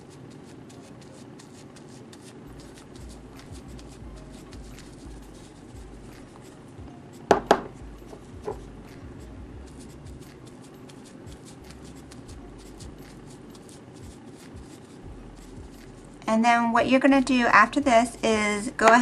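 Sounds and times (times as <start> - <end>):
powder puff patting on latex: 0.1 - 16.2
sharp knocks: 7.3 - 7.8.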